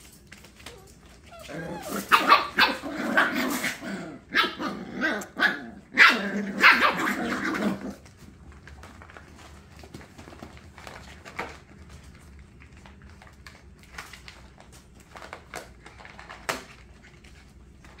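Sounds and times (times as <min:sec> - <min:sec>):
paws scratching: 0:00.0 - 0:04.0, 0:06.5 - 0:18.0.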